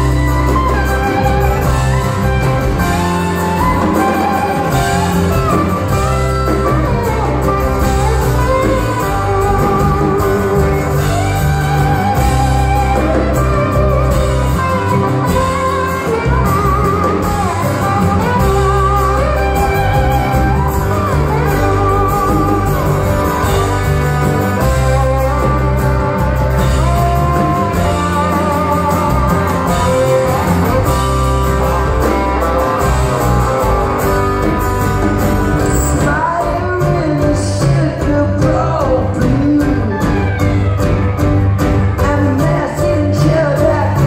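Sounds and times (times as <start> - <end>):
bass guitar: 0.0 - 44.0
drums: 0.0 - 44.0
electric guitars: 0.0 - 44.0
person singing: 35.6 - 40.9, 41.9 - 44.0.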